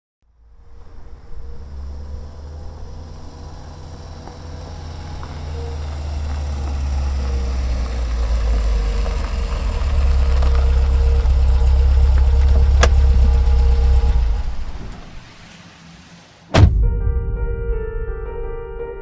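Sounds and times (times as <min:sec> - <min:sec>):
car engine idling: 0:00.2 - 0:16.5.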